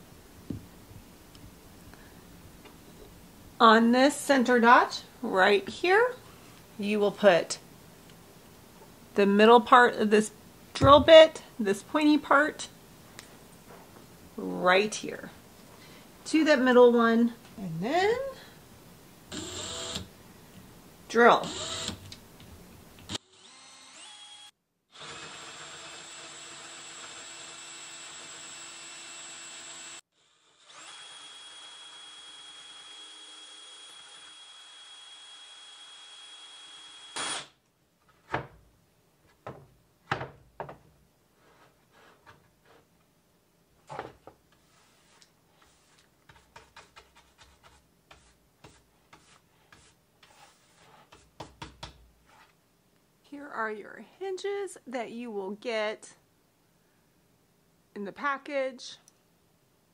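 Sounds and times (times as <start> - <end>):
cordless drill boring into wood: 19.3 - 20.1, 21.4 - 22.0, 23.1 - 37.5
hand brush sweeping sawdust: 44.6 - 46.0.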